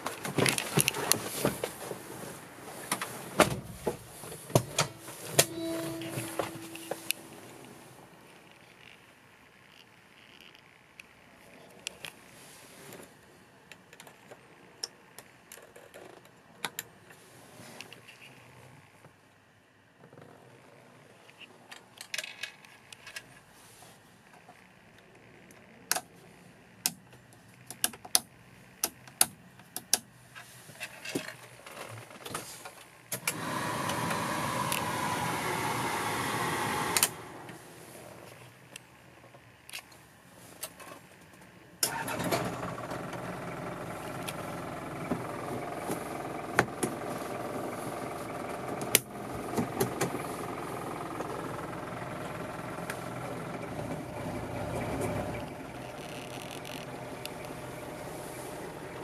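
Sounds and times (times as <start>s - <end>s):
steady mechanical noise: 24.2s - 59.0s
diesel engine idling: 33.3s - 38.0s, 41.9s - 59.0s.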